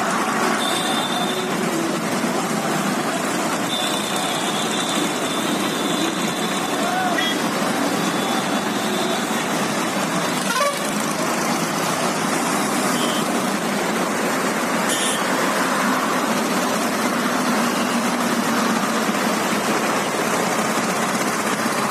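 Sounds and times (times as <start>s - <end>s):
tractors driving past: 0.0s - 21.9s
horn toots: 10.4s - 11.0s.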